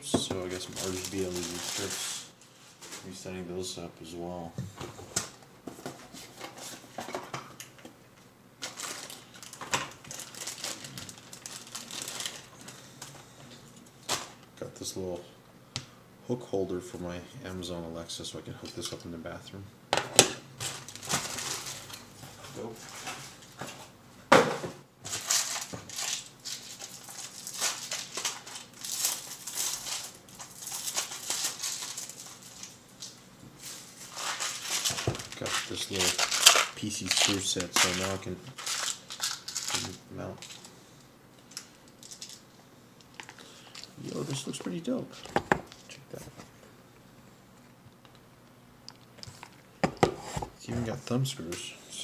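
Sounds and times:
plastic and cardboard rustling: 0.1s - 3.2s, 4.6s - 7.4s, 8.6s - 14.4s, 20.6s - 40.7s.

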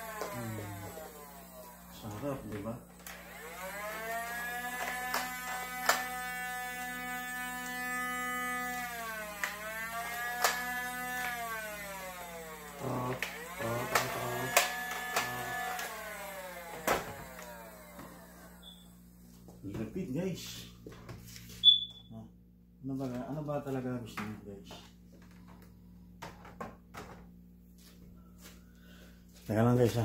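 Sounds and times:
flywheel motor whirring: 0.0s - 18.9s.

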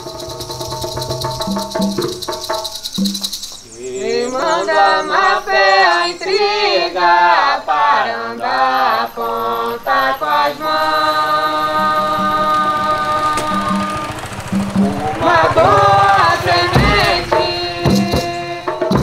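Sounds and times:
choir singing: 3.7s - 19.0s.

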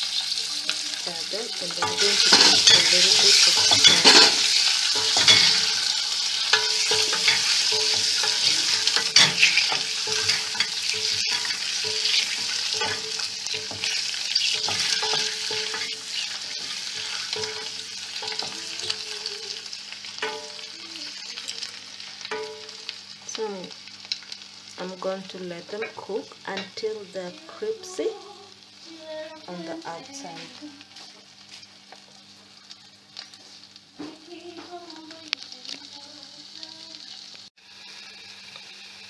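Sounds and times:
eggs sizzling in hot oil: 0.0s - 39.0s
wooden spoon knocking and scraping pot: 1.8s - 5.8s, 6.5s - 19.0s.

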